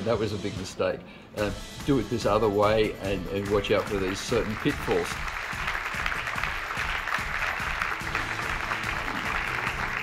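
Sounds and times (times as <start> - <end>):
soft background music: 0.0 - 10.0
audience applauding: 3.4 - 10.0.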